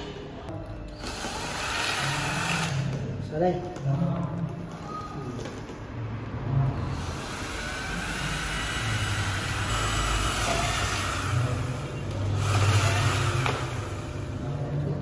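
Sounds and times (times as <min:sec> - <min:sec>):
cordless drill boring into pipe: 0:01.0 - 0:03.0, 0:07.0 - 0:11.8, 0:12.4 - 0:14.2.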